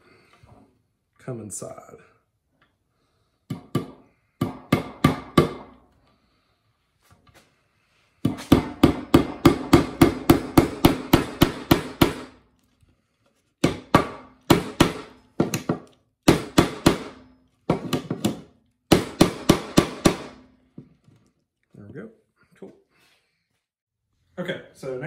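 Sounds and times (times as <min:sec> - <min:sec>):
hammer striking nail into wood: 0:03.5 - 0:05.8, 0:08.2 - 0:12.4, 0:13.6 - 0:20.5.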